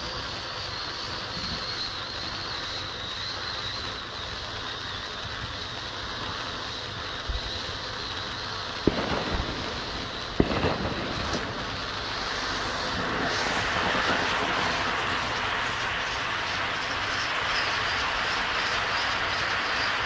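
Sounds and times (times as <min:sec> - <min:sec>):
firework fountain hissing: 0:00.0 - 0:20.0
sharp pops: 0:08.7 - 0:20.0.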